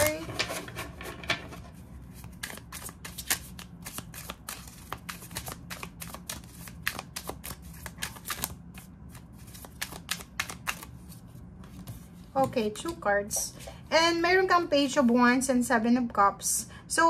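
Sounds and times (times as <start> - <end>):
cards being shuffled: 0.0 - 13.0.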